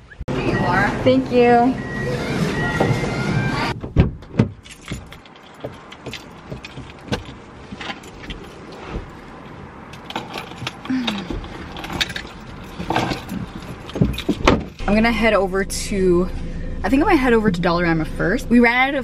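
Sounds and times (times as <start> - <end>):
keys jangling: 4.6 - 14.8.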